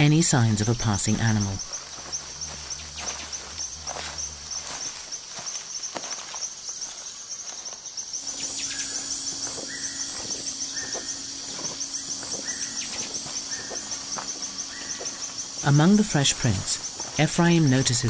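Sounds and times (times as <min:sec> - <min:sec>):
insects trilling: 0:00.0 - 0:18.0
animal call notes: 0:01.0 - 0:05.0.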